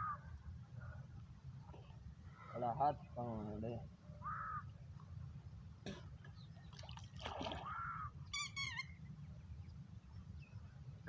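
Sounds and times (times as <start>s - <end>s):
water stirring: 6.7s - 7.8s.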